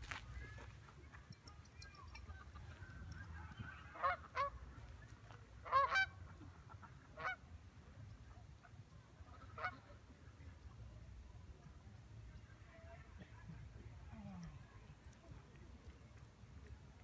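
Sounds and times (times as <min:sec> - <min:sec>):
geese honking: 0:05.6 - 0:07.4.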